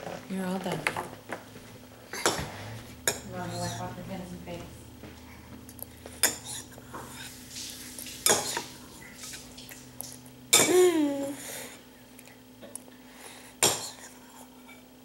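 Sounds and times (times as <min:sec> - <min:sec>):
faint steady hum: 0:00.0 - 0:15.0
spoon scraping a bowl: 0:03.0 - 0:04.0
child vocal sound: 0:10.6 - 0:11.6.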